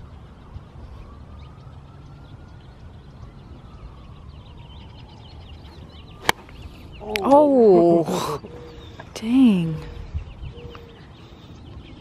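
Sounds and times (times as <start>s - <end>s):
low wind rumble: 0.0s - 12.0s
small birds chirping: 0.0s - 12.0s
golf club striking ball: 6.2s - 6.6s.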